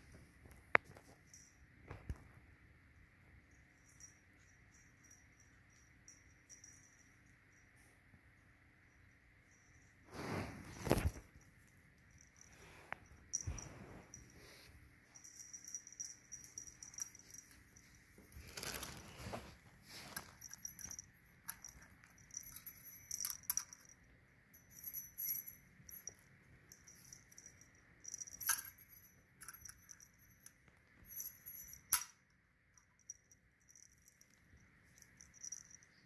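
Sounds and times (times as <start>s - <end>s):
cat toy jingling and rustling: 9.0s - 32.2s, 32.9s - 36.0s.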